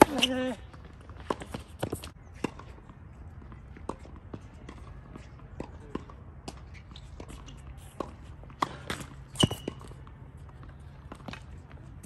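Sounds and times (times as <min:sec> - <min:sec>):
high shoe squeak: 0:00.0 - 0:00.6, 0:06.6 - 0:08.0, 0:09.2 - 0:10.0.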